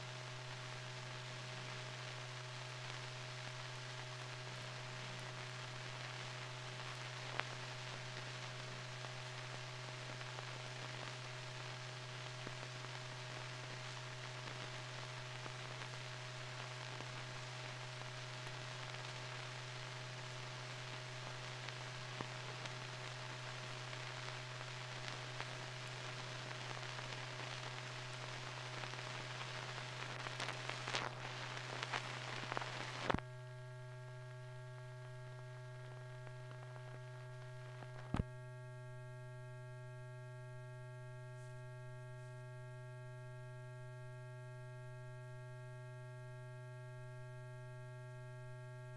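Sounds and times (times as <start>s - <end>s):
film hiss: 0.0s - 39.6s
electrical hum: 0.0s - 48.9s
crackles and clicks: 0.1s - 38.7s.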